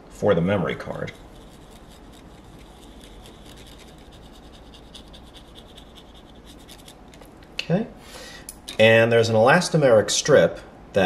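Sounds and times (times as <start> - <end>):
cotton swab rubbing circuit board: 0.9 - 7.2.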